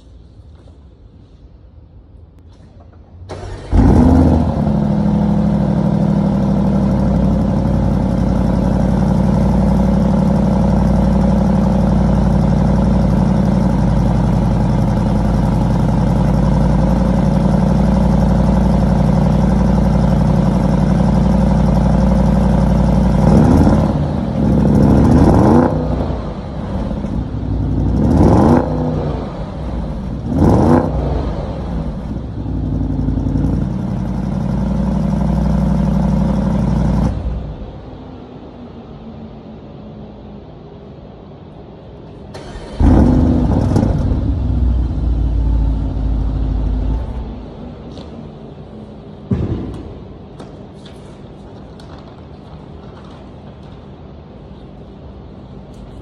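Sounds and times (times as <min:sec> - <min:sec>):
car engine starting and idling: 0:02.4 - 0:56.0
engine revving: 0:03.3 - 0:37.6, 0:42.4 - 0:47.5.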